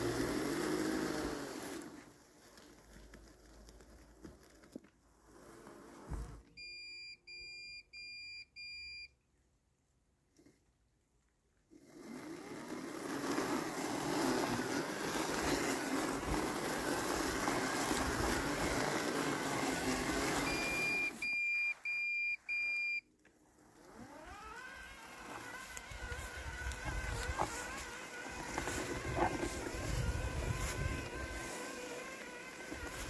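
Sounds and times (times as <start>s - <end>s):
robotic mower blade motor running: 0.0s - 6.4s, 11.7s - 22.5s, 23.3s - 33.0s
short high beeps: 20.5s - 23.0s.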